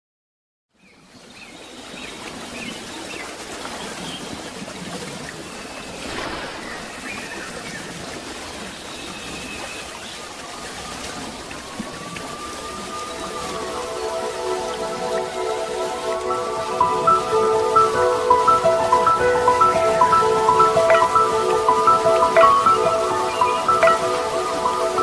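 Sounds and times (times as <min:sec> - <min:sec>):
rushing water: 0:00.8 - 0:25.0
sustained musical tone: 0:12.0 - 0:25.0.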